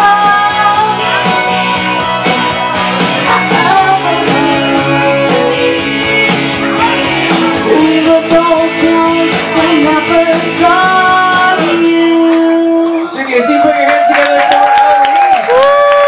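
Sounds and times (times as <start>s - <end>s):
girl singing into microphone: 0.0s - 13.1s
pop backing track with guitar: 0.0s - 16.0s.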